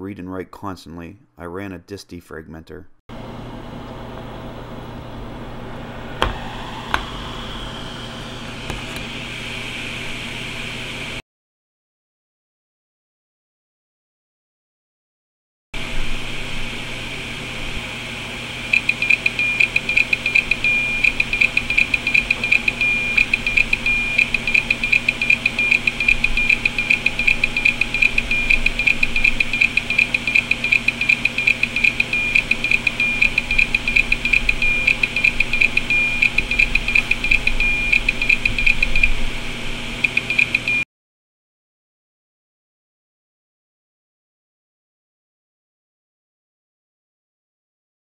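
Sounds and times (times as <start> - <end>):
hard disk spindle whine: 3.1 - 11.2, 15.8 - 40.8
hard disk head clicking: 18.8 - 39.1.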